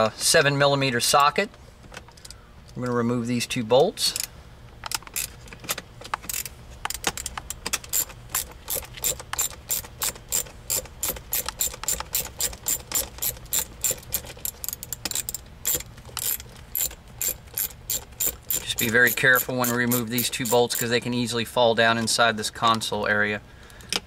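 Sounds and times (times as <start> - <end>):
hand ratchet clicking: 6.2 - 21.0.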